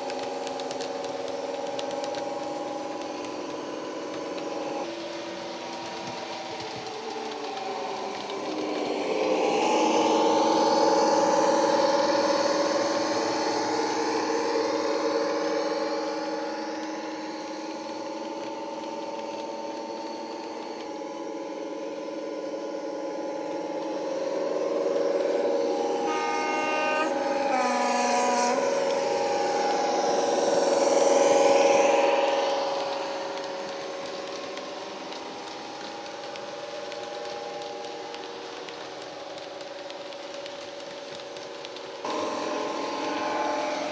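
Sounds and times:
model train engine sound: 0.0 - 38.6, 39.4 - 43.9
two-tone train horn: 24.5 - 33.6, 42.1 - 43.9.

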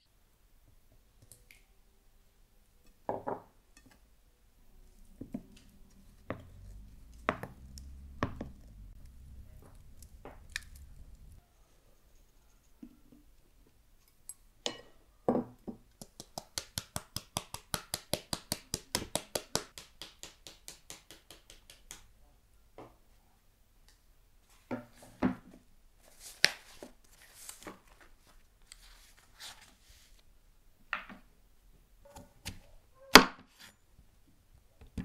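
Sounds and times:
low steady hum: 4.4 - 11.4.

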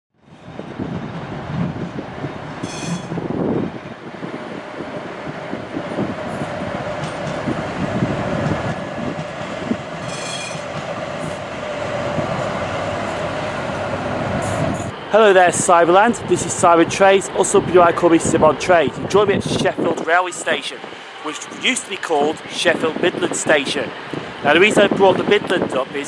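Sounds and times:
tram wheel squeals: 0.2 - 4.0, 9.3 - 11.4
tram rumbling past: 0.2 - 26.0.

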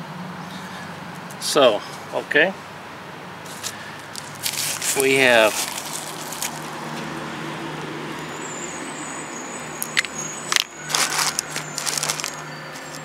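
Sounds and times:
road traffic hum: 0.0 - 13.0
packaging rustling: 3.6 - 7.1, 9.8 - 13.0.

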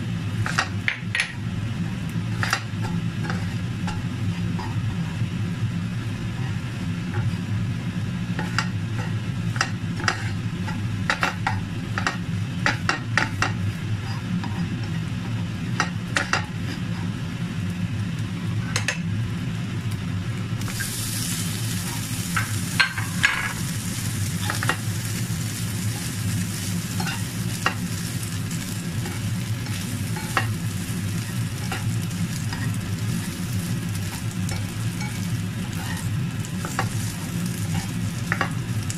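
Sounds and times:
prawns sizzling in pan: 0.0 - 18.7, 20.0 - 38.9
spatula scraping frying pan: 1.8 - 5.3, 8.3 - 15.4, 20.7 - 38.9.

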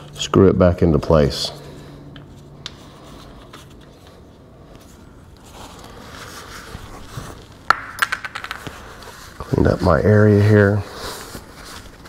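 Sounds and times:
soft rustling: 1.4 - 7.7, 8.6 - 12.0.

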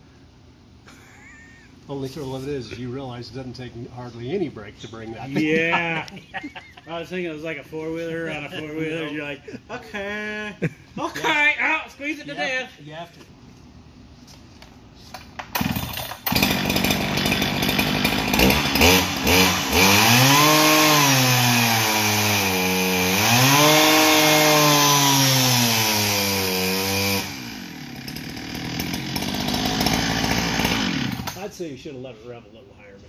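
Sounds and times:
chainsaw engine revving: 15.6 - 31.5.

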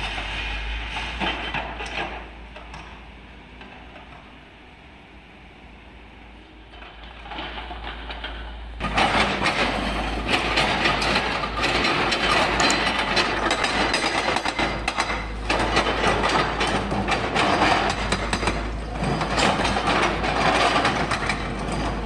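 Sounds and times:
hydraulic rock breaker hammering: 7.3 - 22.0.

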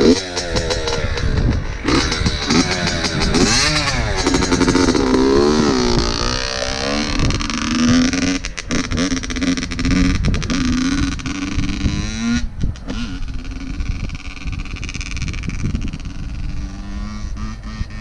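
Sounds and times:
dirt bike engine revving down to idle: 0.0 - 18.0.

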